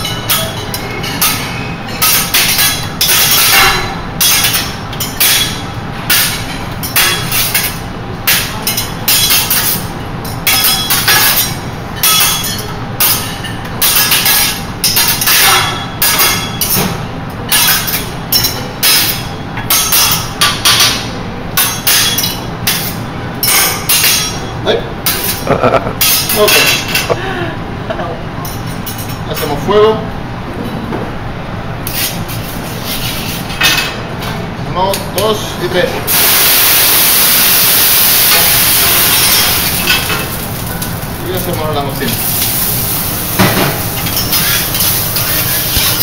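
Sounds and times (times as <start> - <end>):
metal utensils clanking on griddle: 0.0 - 16.9, 17.5 - 24.4, 25.0 - 27.2, 38.3 - 46.0.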